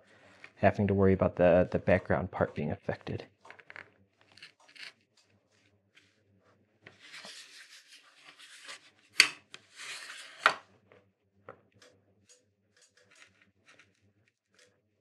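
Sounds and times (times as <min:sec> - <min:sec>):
wood scraping on a surface: 0:03.5 - 0:04.9.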